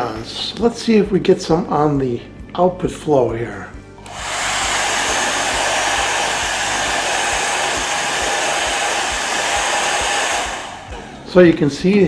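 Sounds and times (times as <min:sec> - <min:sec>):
hair dryer blowing: 0:04.0 - 0:11.3.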